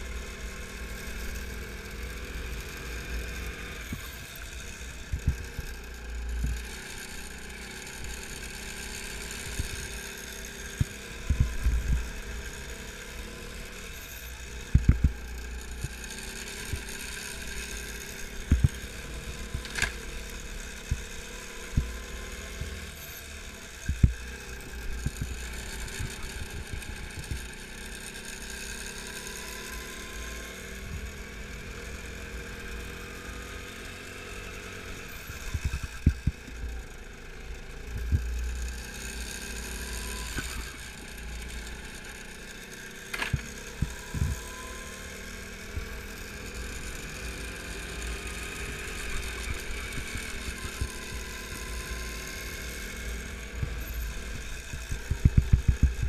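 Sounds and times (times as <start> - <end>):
go-kart engine: 0.0 - 56.0
wind rumble on microphone: 54.8 - 56.0.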